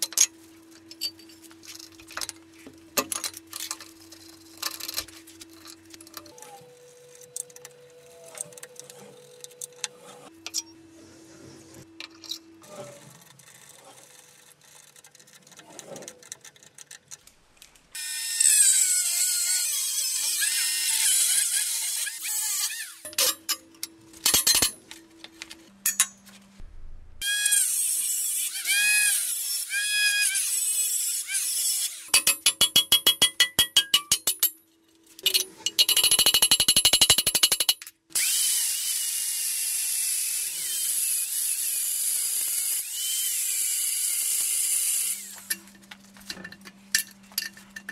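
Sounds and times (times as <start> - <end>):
power tools on steel whining: 38.2 - 45.6.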